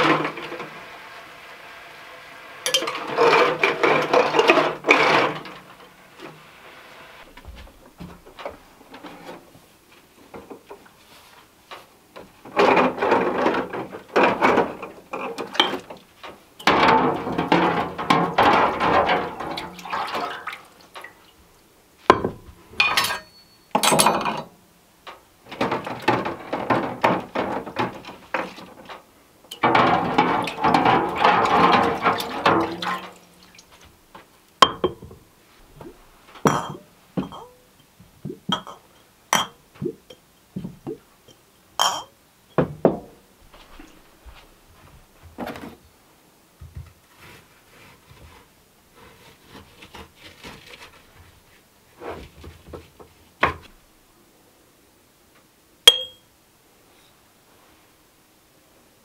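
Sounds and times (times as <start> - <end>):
water pouring into a pot: 19.6 - 21.0.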